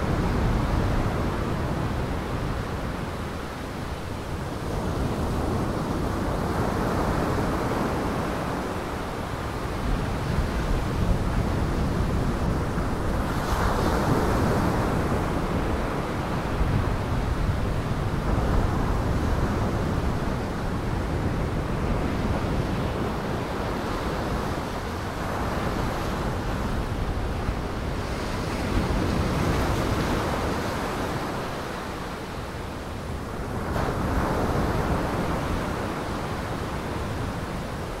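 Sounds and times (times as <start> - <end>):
wind: 0.0 - 38.0.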